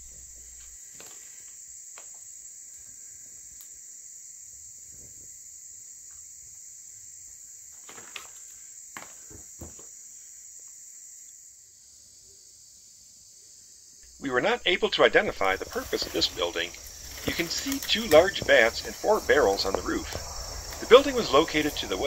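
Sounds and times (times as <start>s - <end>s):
high-pitched insect chirring: 14.0s - 22.0s.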